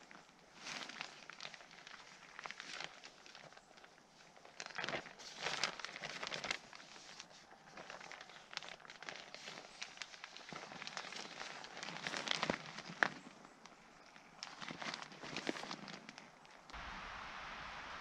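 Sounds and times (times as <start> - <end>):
nylon sack rustling: 0.5 - 13.2.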